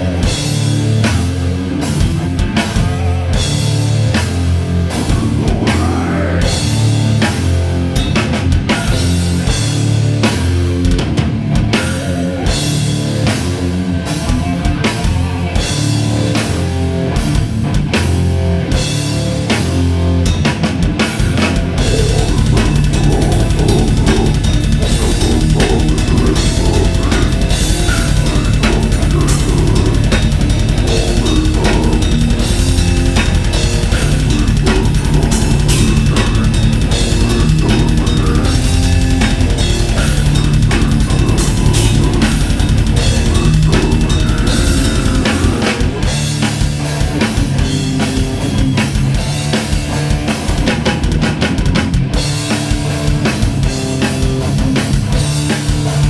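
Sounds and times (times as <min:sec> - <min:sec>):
death metal band playing: 0:00.0 - 0:56.0
rapid kick drum strokes: 0:20.3 - 0:56.0.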